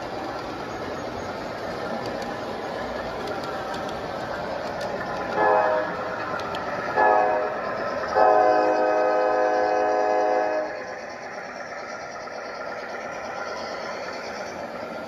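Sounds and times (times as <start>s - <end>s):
model train running on track: 0.0s - 15.0s
model locomotive horn blasts: 5.3s - 6.0s, 7.0s - 10.8s.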